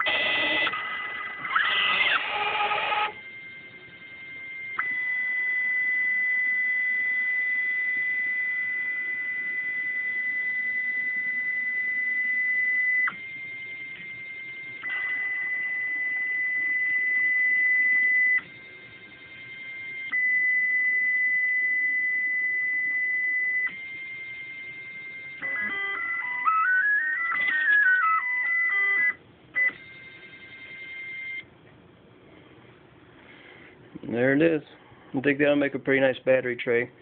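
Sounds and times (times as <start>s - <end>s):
stepper motors whining: 0.0s - 3.6s.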